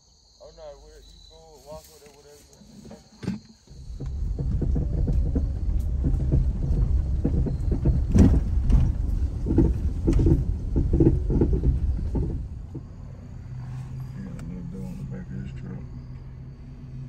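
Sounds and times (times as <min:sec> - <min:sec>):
vehicle rumbling on dirt trail: 0:00.7 - 0:17.0
knocks and rattles over bumps: 0:02.6 - 0:14.8.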